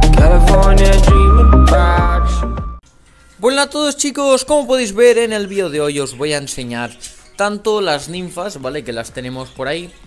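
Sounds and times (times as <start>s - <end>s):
intro music with deep bass: 0.0s - 2.8s.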